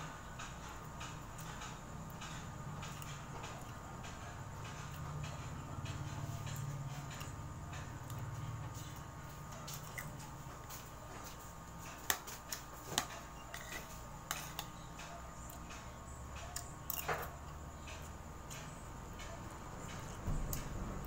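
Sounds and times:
faint steady hum: 0.0s - 21.0s
spoon scraping ceramic plate: 13.0s - 14.6s.

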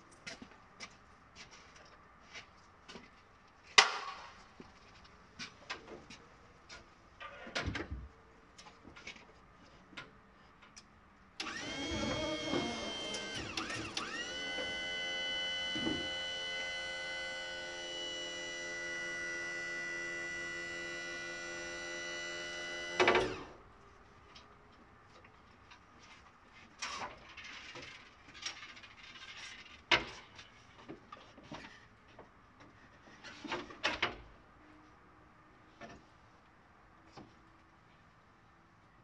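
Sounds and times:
hydraulic lift pump whining: 11.4s - 23.6s.

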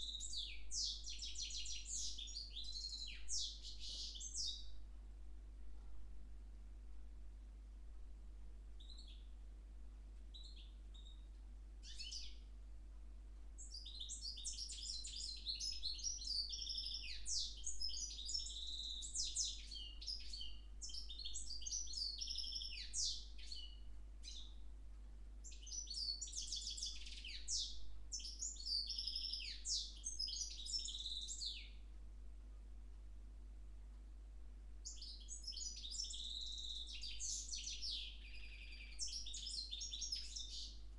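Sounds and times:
bird singing with fast trills: 0.0s - 4.8s, 8.8s - 9.3s, 10.3s - 12.5s, 13.6s - 24.6s, 25.4s - 31.8s, 34.8s - 40.9s.

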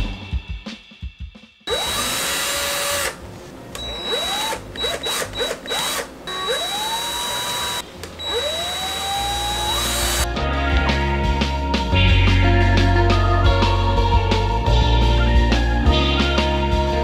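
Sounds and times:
cordless drill motor whine: 1.7s - 3.2s, 3.8s - 10.3s.

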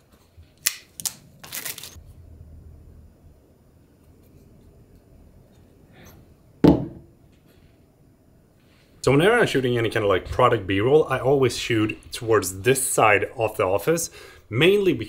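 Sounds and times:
box thump on desk mat: 6.6s - 7.1s.

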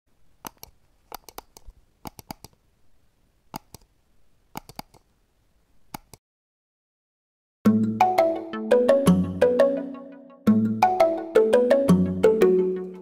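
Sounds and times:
sharp dry clicks: 0.4s - 2.6s, 3.5s - 3.9s, 4.5s - 5.1s, 5.9s - 6.2s.

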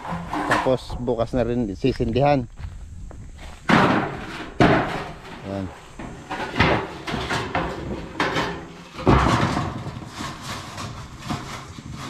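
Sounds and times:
metal roofing sheets clanking: 0.0s - 1.3s, 3.7s - 12.0s.

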